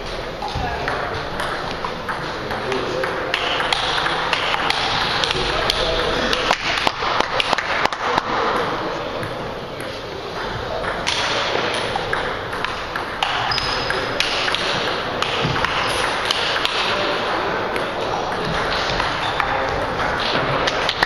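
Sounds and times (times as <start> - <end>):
table tennis ball hits: 0.5 - 21.0.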